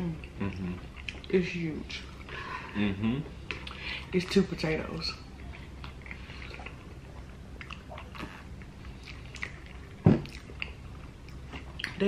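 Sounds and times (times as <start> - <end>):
wet chewing: 0.2 - 1.3, 5.3 - 12.0
thump: 10.0 - 10.3.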